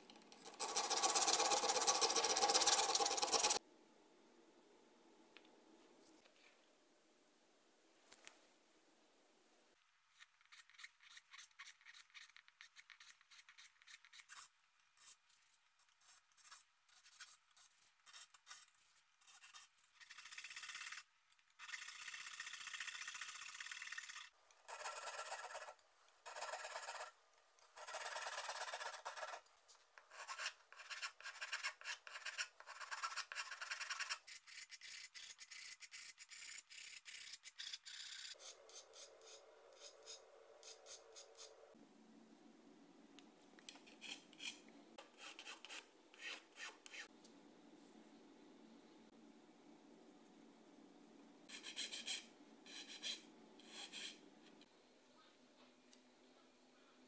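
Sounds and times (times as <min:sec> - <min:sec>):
tools scraping wood: 0:00.4 - 0:03.6.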